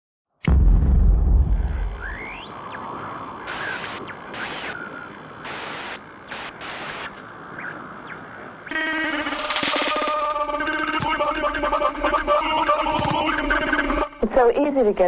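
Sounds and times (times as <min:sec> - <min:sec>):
deep boom: 0:00.4 - 0:02.4
rising electronic sweeps: 0:01.8 - 0:07.8
noise hiss: 0:02.4 - 0:15.0.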